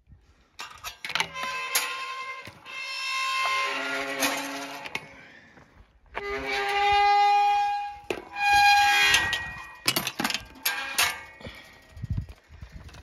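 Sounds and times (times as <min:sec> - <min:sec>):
metal gate hinges squealing: 0:00.6 - 0:05.2, 0:06.2 - 0:11.6.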